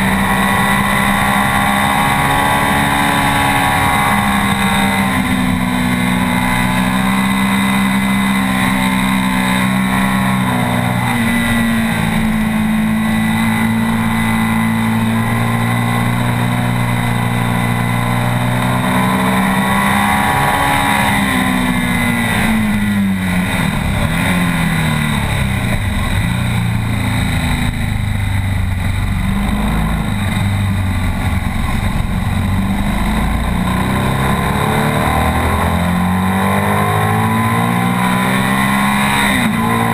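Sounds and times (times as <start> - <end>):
motorcycle engine at speed: 0.0 - 39.9.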